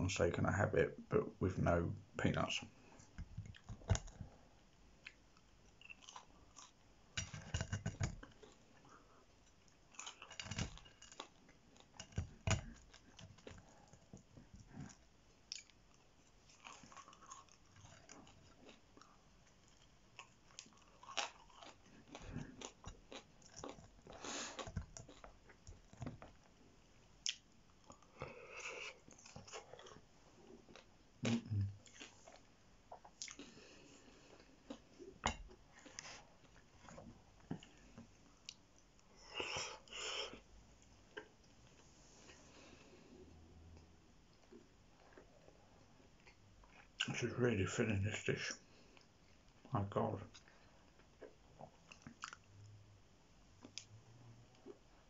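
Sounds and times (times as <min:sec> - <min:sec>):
wet crunchy chewing: 0:05.7 - 0:07.5, 0:14.7 - 0:26.3.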